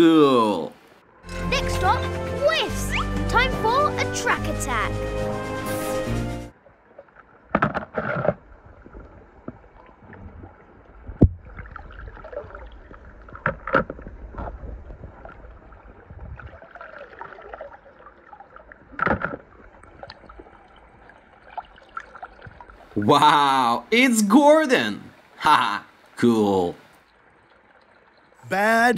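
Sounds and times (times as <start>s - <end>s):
pool water sloshing and splashing: 5.8s - 23.5s, 24.2s - 28.4s.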